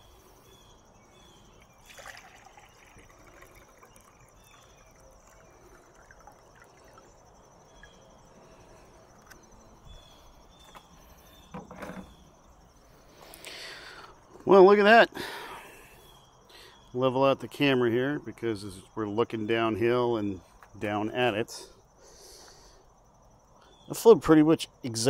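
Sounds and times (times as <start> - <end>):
water poured into a glass: 1.8 - 7.1
light handling knocks: 11.5 - 12.2.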